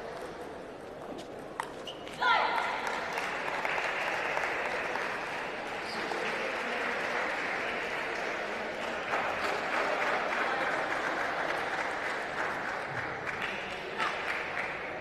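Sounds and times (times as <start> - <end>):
spectators applauding: 2.3 - 15.0.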